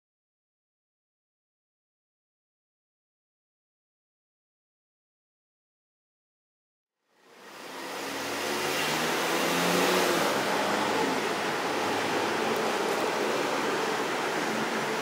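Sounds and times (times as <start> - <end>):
street noise: 7.1 - 15.0.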